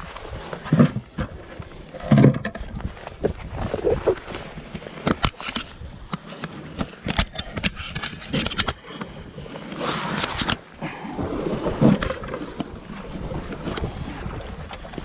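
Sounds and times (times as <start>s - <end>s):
wind rumbling on microphone: 0.0s - 15.0s
sharp clicks and scrapes: 3.8s - 10.7s.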